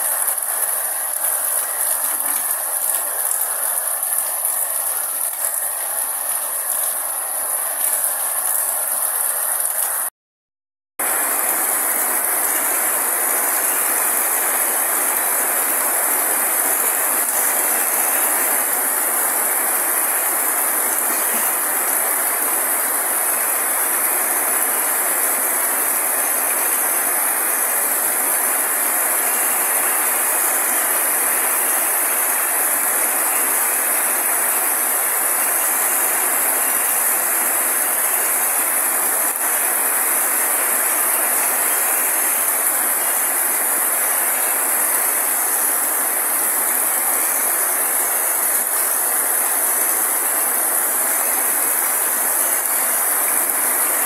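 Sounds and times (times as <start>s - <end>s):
steady rain falling: 0.0s - 10.1s, 11.0s - 54.0s.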